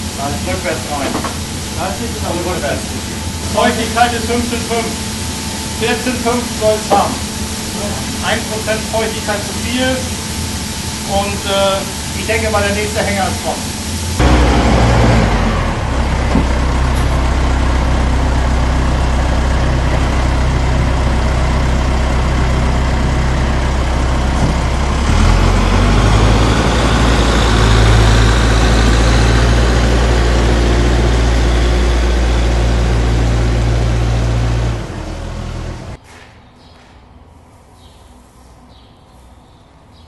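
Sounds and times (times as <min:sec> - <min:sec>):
grain pouring hiss: 0:00.0 - 0:15.4
tractor engine running: 0:00.0 - 0:36.0.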